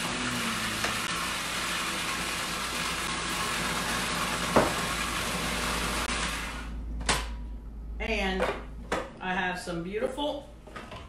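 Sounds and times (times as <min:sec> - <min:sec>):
food processor running: 0:00.0 - 0:06.8.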